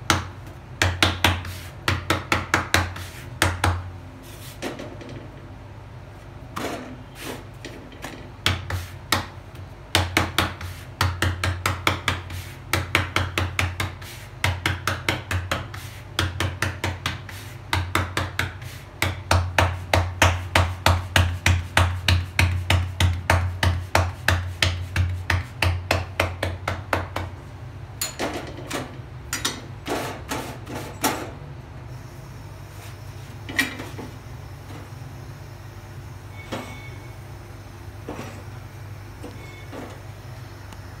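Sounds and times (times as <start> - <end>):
hands slapping dough: 0.0 - 3.9, 8.4 - 27.4.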